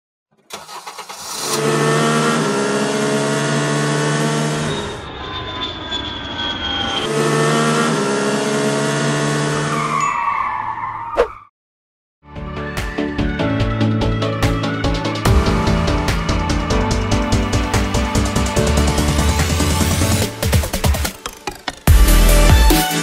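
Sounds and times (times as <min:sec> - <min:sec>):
car engine running: 0:00.4 - 0:09.8.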